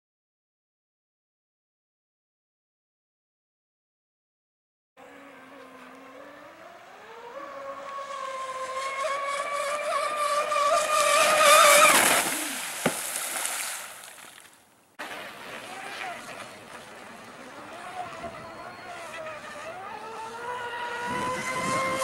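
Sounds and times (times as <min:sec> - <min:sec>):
electric motor whining: 0:05.0 - 0:12.6, 0:15.6 - 0:22.0.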